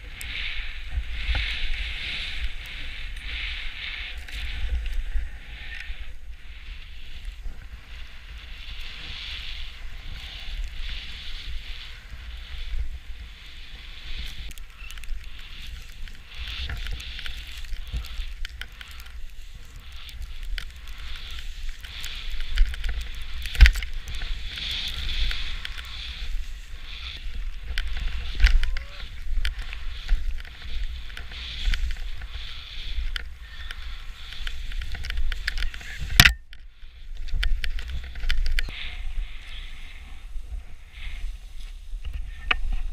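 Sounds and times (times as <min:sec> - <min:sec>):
skis swishing through powder snow: 0:00.0 - 0:36.2, 0:38.7 - 0:42.9
wind rumble on microphone: 0:00.0 - 0:42.9
scattered clicks: 0:10.1 - 0:38.8.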